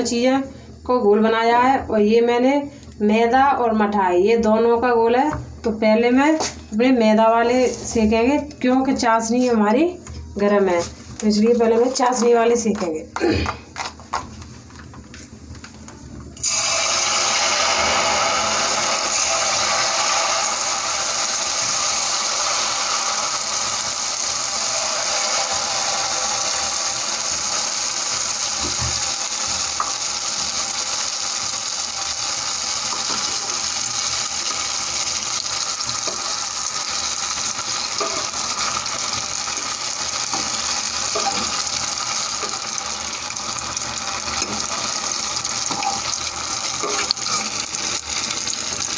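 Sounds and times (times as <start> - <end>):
batter sizzling in hot oil: 16.4 - 48.9.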